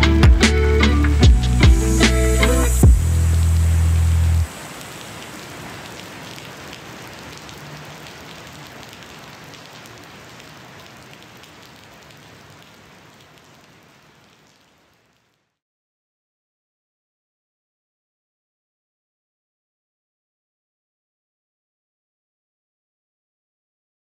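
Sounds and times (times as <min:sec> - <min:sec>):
steady hiss with faint crackles: 0:00.0 - 0:15.6.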